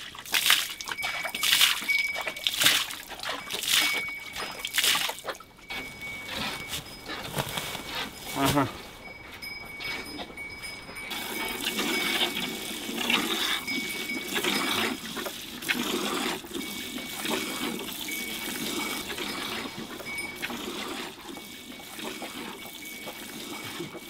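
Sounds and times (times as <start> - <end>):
water running and splashing: 0.0 - 5.6, 11.1 - 24.0.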